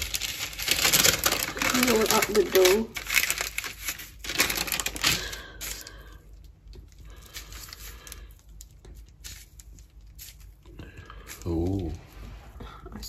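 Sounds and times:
parchment paper crackling: 0.0s - 12.0s.

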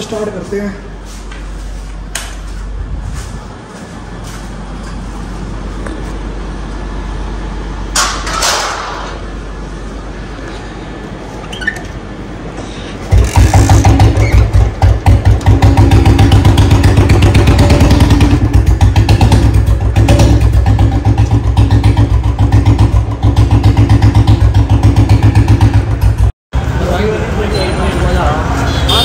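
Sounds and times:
motorcycle engine idling: 13.1s - 26.3s.

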